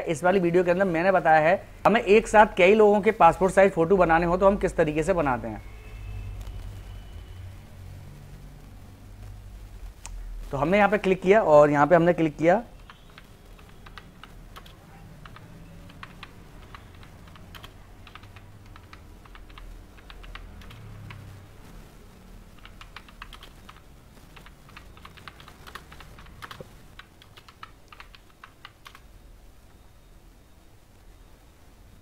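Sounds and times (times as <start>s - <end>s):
low steady hum: 0.0s - 32.0s
computer keyboard typing: 12.7s - 21.3s, 22.5s - 29.1s.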